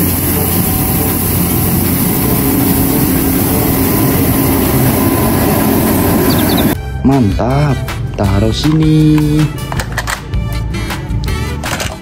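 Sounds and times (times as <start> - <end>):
rotating brushes sweeping road: 0.0 - 6.8
street sweeper engine running: 0.0 - 6.8.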